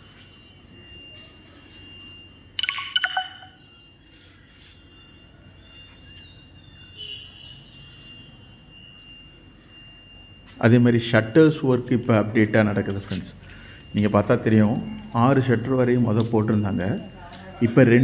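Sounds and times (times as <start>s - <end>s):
high bird chirps: 2.6s - 8.6s.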